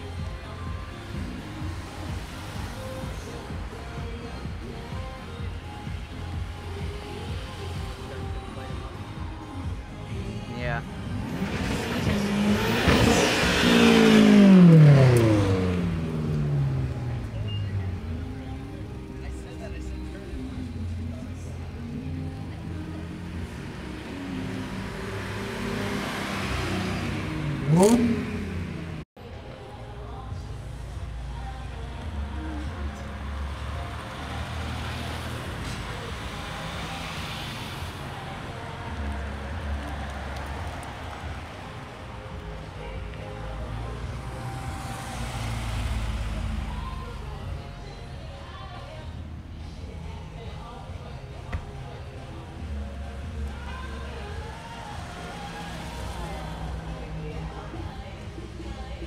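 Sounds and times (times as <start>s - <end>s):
cars driving past: 0.0s - 4.4s, 9.5s - 29.1s, 30.5s - 59.0s
car accelerating past: 11.0s - 17.7s, 22.9s - 29.0s, 43.7s - 47.4s.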